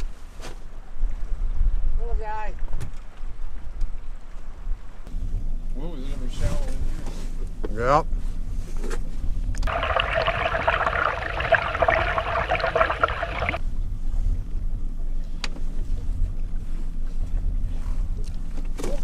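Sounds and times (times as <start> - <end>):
outboard motor humming: 9.6 - 13.6
water rushing past camera: 9.6 - 13.6.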